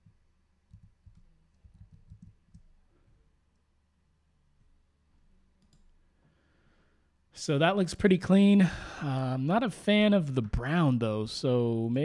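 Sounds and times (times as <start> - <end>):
computer keyboard typing: 0.7 - 2.7.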